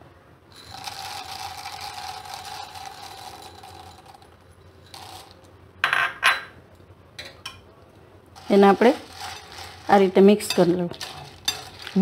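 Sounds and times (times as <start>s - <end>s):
fried snack poured into yogurt: 0.5s - 5.4s, 8.4s - 12.0s.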